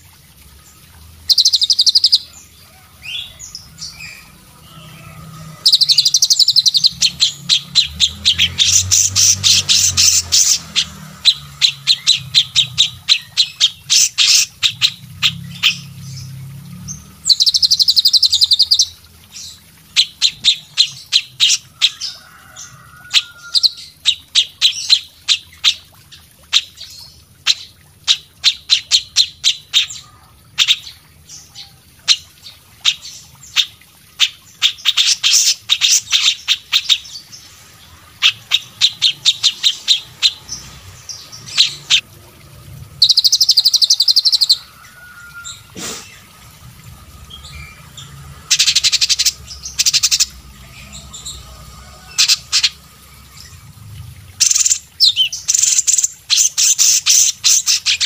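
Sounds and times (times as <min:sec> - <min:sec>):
songbirds chirping and whistling: 0:43.0 - 0:46.3.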